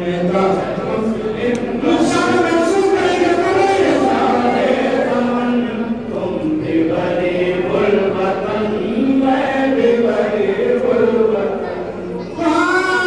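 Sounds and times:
group of voices chanting: 0.0 - 13.0
man chanting into a microphone: 1.3 - 4.6, 11.6 - 13.0.

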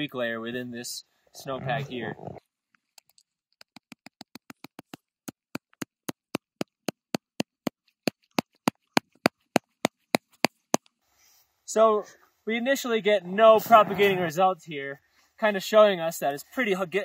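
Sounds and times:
hand tapping shovel blade: 3.0 - 10.9.

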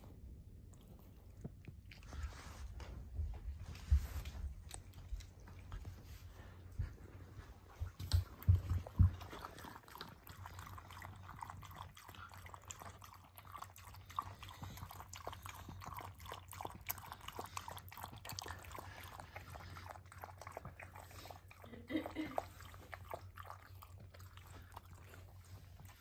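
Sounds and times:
dog lapping water: 7.7 - 26.0.

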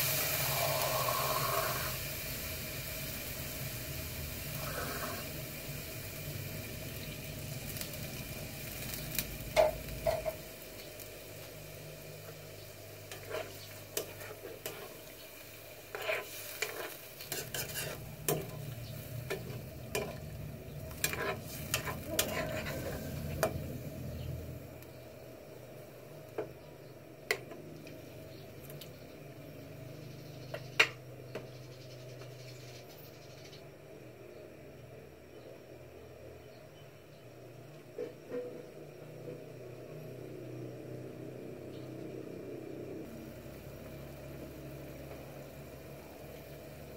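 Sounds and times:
steady sizzle: 0.0 - 46.9
utensil clinking and scraping pan: 15.9 - 20.2, 20.9 - 23.5.

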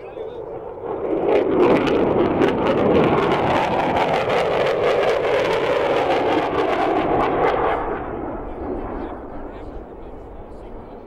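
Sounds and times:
fighter jet passing low: 0.0 - 11.0.

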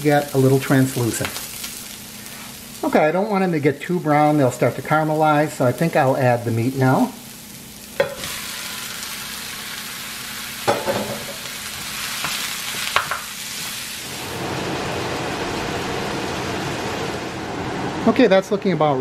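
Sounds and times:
meat sizzling in a skillet: 0.0 - 17.3
utensil knocking in a pan: 10.6 - 11.4, 12.9 - 13.3.

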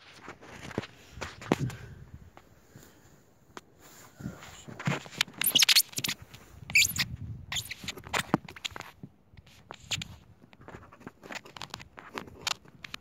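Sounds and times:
camera handling noise: 4.8 - 13.0.

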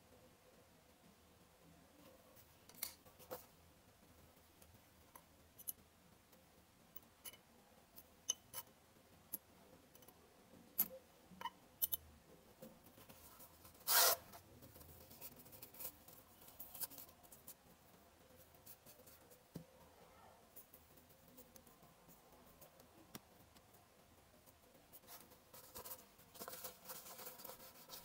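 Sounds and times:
tweezers clicking on metal parts: 10.8 - 12.1.

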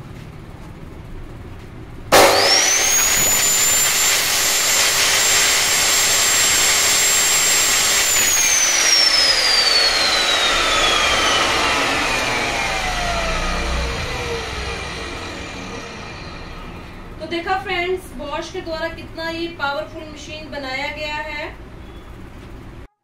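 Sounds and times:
cut-off saw motor whining: 2.1 - 17.3.

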